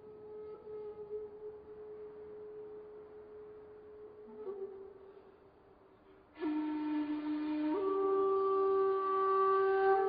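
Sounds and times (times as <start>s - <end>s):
long held music tone: 0.0s - 10.0s.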